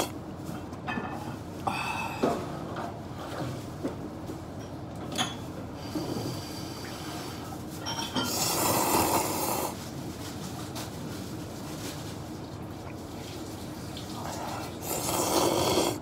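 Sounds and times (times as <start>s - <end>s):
person slurping noodles: 8.3s - 9.8s, 14.2s - 16.0s.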